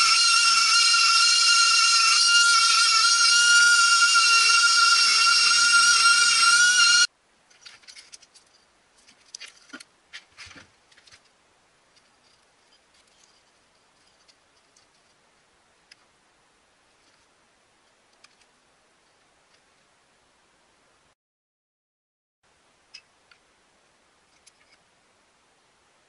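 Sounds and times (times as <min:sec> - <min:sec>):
rotary tool whining: 0:00.0 - 0:07.1.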